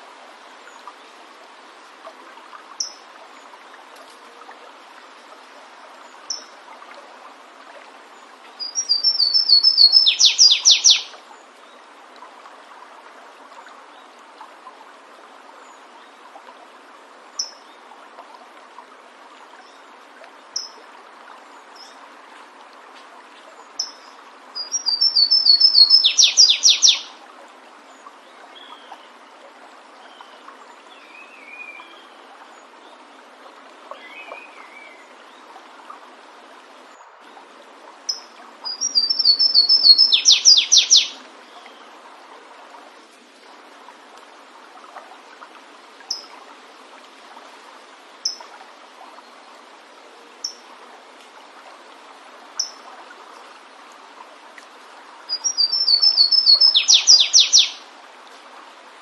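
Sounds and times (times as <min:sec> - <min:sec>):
stream rushing: 0:00.0 - 0:59.0
warbler singing: 0:08.6 - 0:11.1, 0:23.8 - 0:27.1, 0:38.1 - 0:41.2, 0:55.3 - 0:57.8.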